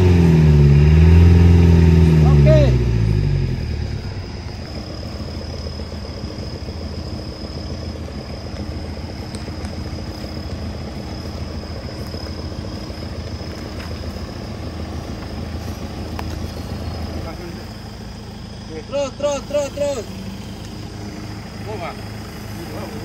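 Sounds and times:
engine idling rumble: 0.0s - 23.0s
faint clicks: 8.5s - 9.8s.

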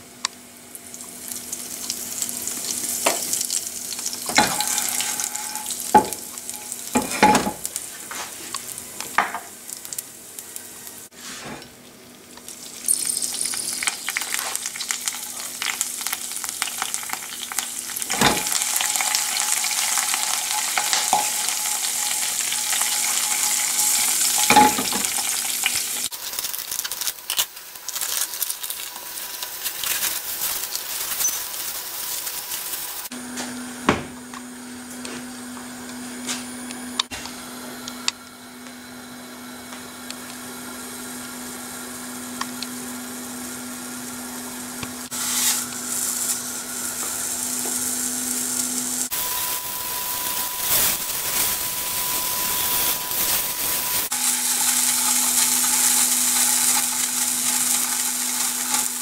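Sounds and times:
low mechanical hum: 0.0s - 59.0s
fish searing in a frying pan: 0.6s - 11.2s, 12.3s - 33.1s, 40.6s - 59.0s
plastic crinkling: 26.1s - 33.1s.

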